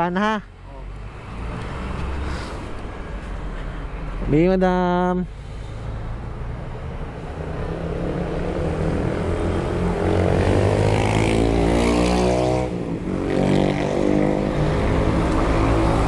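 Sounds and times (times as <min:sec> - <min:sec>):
vehicle engine accelerating: 0:07.4 - 0:16.0.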